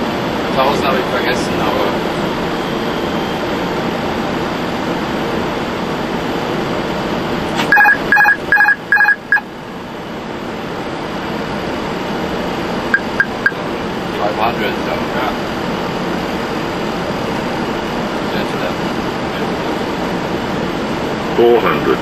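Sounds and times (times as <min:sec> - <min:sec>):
cockpit air and engine noise: 0:00.0 - 0:22.0
short electronic beeps: 0:07.7 - 0:09.4, 0:13.0 - 0:13.6.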